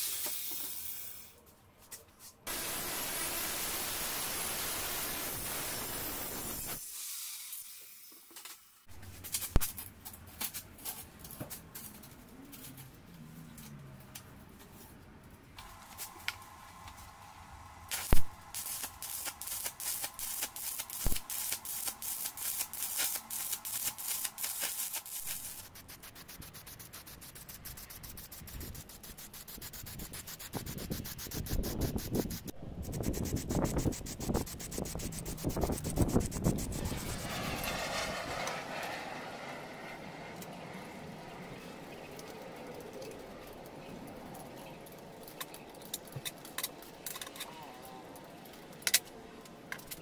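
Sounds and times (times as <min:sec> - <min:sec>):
arc welding crackle: 0:02.5 - 0:12.8, 0:15.6 - 0:39.1
spray can rattling: 0:17.9 - 0:37.5.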